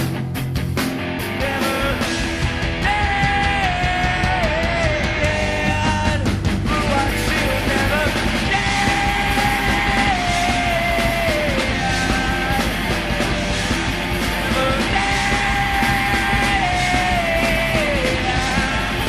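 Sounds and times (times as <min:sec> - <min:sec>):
punk rock band playing: 0:00.0 - 0:19.0
man singing long notes: 0:02.8 - 0:12.9, 0:14.4 - 0:19.0.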